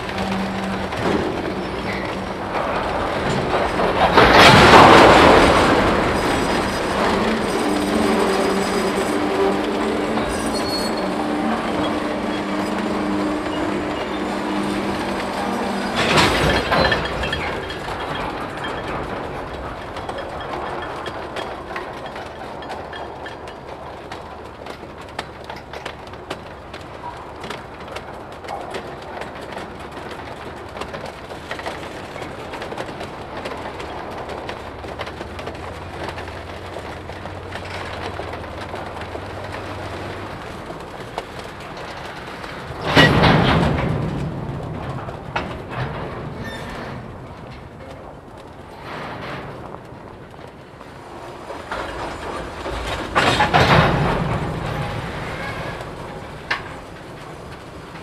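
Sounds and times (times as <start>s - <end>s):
freight car wheels rumbling: 0.0s - 58.0s
loud clatter: 0.0s - 58.0s
wheels clicking and clanking: 0.0s - 58.0s.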